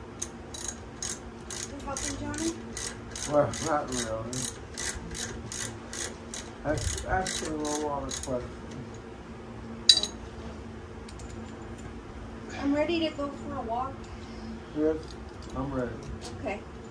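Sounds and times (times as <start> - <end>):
ratchet wrench clicking: 0.2 - 8.4.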